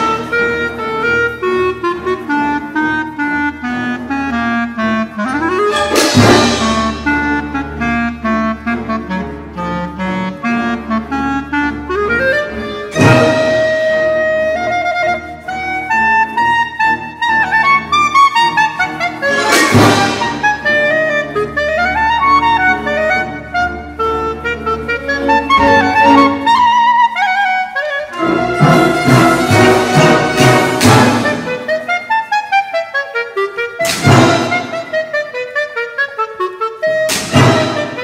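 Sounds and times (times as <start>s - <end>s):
solo clarinet: 0.0s - 38.0s
symphony orchestra: 0.0s - 38.0s
loud percussion strikes: 5.7s - 7.2s, 19.3s - 20.4s, 28.6s - 31.5s, 33.8s - 34.8s, 37.1s - 38.0s.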